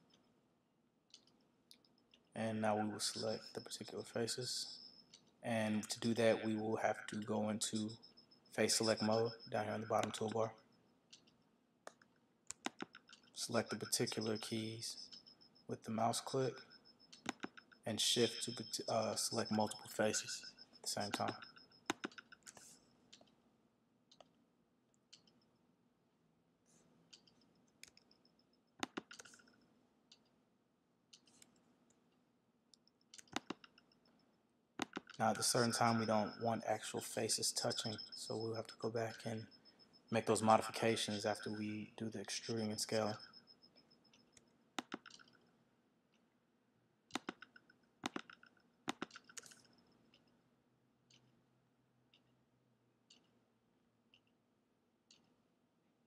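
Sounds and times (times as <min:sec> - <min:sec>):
computer mouse clicks: 0:01.1 - 0:02.3, 0:11.1 - 0:14.4, 0:17.0 - 0:17.8, 0:21.0 - 0:23.4, 0:24.1 - 0:24.4, 0:25.0 - 0:25.5, 0:26.7 - 0:30.3, 0:31.1 - 0:32.0, 0:32.7 - 0:34.2, 0:34.8 - 0:35.2, 0:44.1 - 0:45.5, 0:47.1 - 0:50.3.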